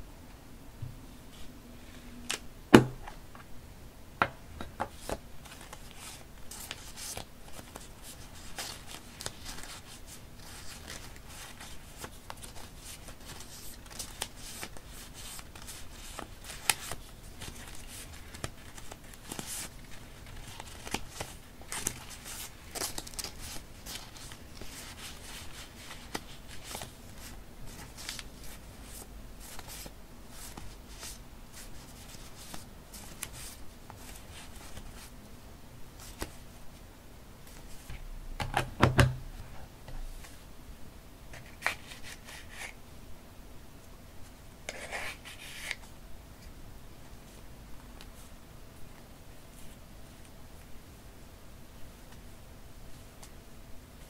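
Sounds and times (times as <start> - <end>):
paper rustling: 4.9 - 35.1.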